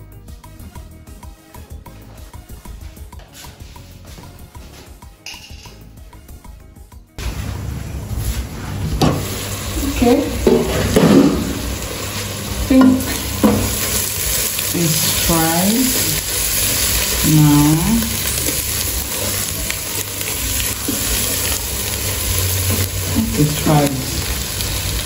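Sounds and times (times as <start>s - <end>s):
food sizzling in a pot: 7.2s - 25.0s.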